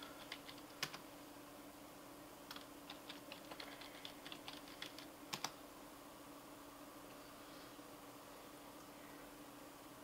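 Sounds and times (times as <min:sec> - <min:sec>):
computer keyboard typing: 0:00.0 - 0:01.0, 0:02.5 - 0:05.6
faint hum: 0:00.0 - 0:10.0.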